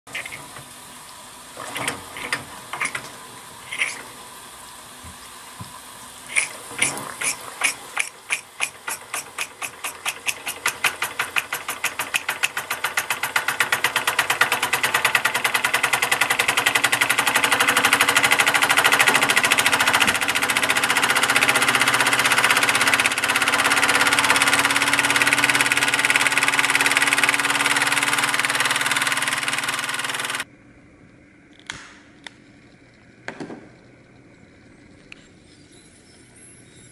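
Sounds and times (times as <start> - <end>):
toy steam engine chuffing: 3.7 - 4.1, 6.3 - 30.5.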